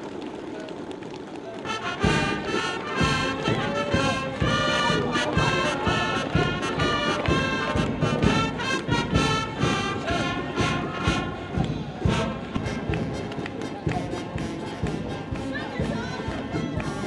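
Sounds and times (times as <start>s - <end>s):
brass band music: 1.6s - 17.0s.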